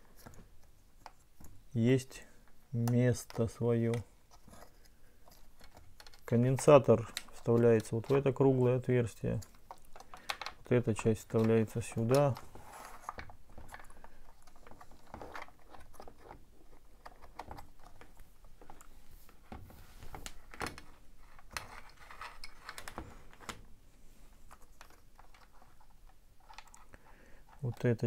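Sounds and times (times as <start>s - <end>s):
plastic parts clicking and rattling: 0.0s - 18.9s, 19.5s - 23.7s, 24.3s - 28.0s.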